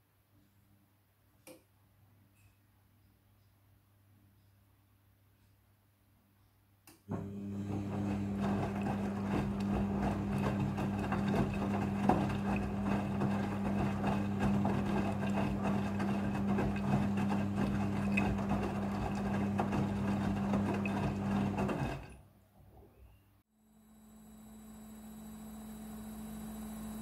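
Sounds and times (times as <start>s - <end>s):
washing machine motor hum: 7.1s - 22.2s, 23.8s - 27.0s
wet clothes sloshing in drum: 7.7s - 22.1s.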